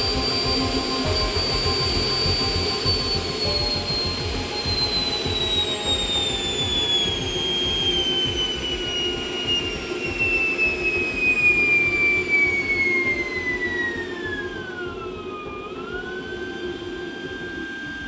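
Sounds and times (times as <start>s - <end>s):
jet engine compressor whine: 0.0s - 18.0s
jet engine rushing roar: 0.0s - 18.0s.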